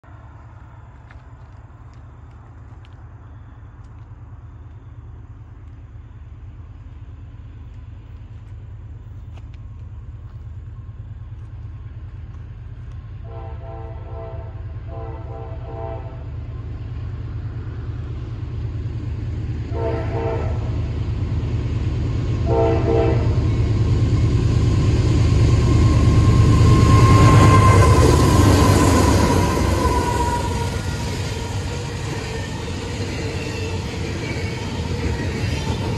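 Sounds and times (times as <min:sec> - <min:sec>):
low rumble of train engine: 0:00.0 - 0:35.9
locomotive air horn blasts: 0:13.2 - 0:16.3, 0:19.7 - 0:20.8, 0:22.4 - 0:23.5.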